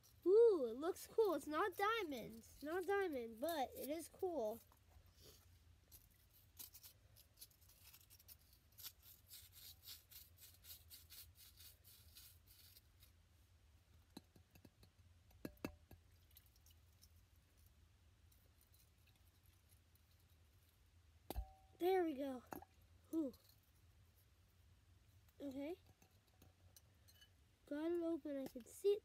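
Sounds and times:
small tool scraping packed sand: 5.2 - 13.2.

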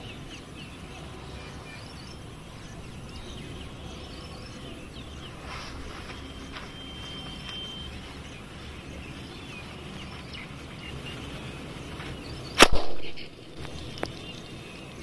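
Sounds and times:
firework cracking and whooshing: 12.6 - 13.3.

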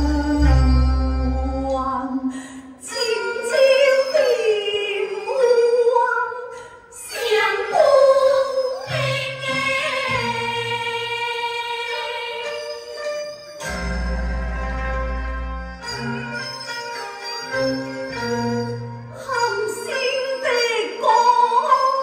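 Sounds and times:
sustained accompaniment tones: 0.0 - 5.8
woman singing amplified: 0.0 - 13.1, 19.2 - 22.0.

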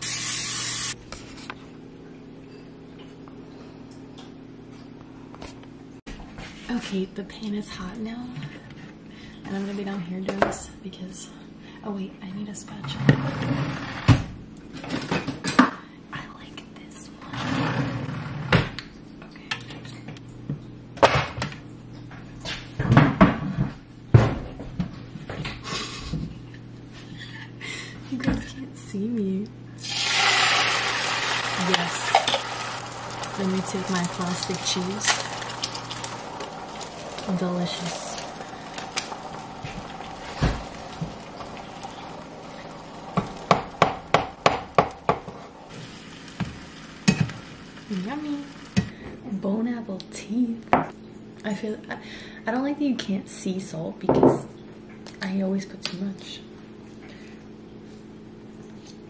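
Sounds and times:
eggs sizzling in frying pan: 0.0 - 1.0, 29.8 - 49.0
low steady hum: 0.0 - 59.0.

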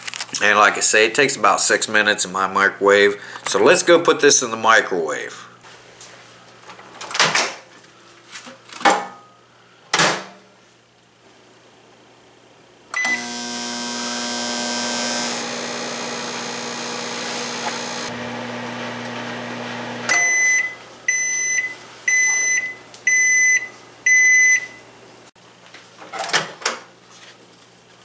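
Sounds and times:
microwave beeps: 13.0 - 13.4, 20.1 - 24.8
microwave oven humming: 13.0 - 20.8.

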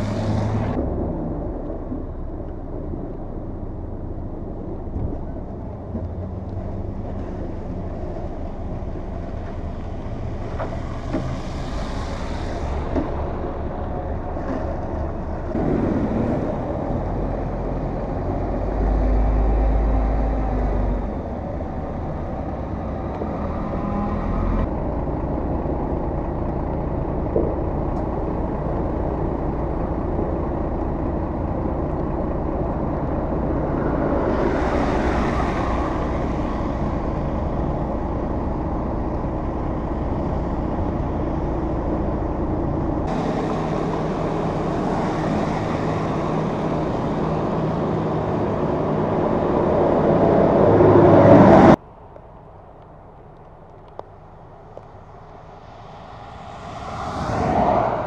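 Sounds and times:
vehicle engines running: 0.0 - 58.0
tyres hissing through slush: 10.8 - 13.0.

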